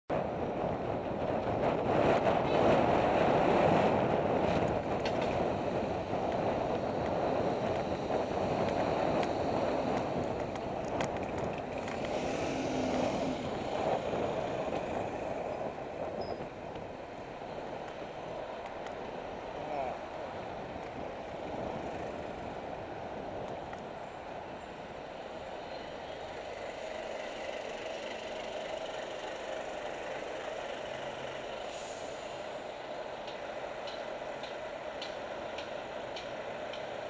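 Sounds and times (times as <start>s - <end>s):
wind rushing over microphone: 0.1s - 25.5s
passing motor traffic: 0.2s - 37.0s.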